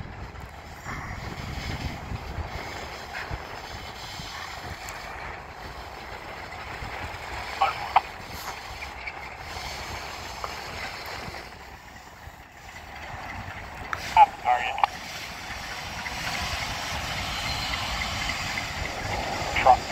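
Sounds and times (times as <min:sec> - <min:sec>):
freight train rumbling: 0:00.0 - 0:19.9
sharp squeaks: 0:17.0 - 0:19.5.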